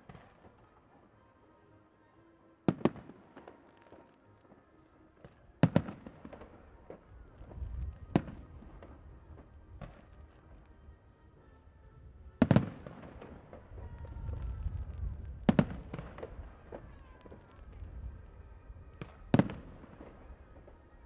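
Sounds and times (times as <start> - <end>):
fireworks pops and crackle: 0.0 - 1.1, 2.7 - 10.7, 12.4 - 20.8
fireworks bangs: 5.2 - 10.5, 12.4 - 21.0.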